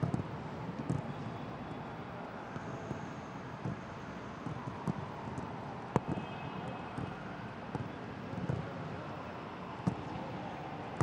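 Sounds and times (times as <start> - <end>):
stadium ambience: 0.0 - 11.0
football being kicked: 4.4 - 5.0, 6.0 - 6.2, 7.7 - 8.7.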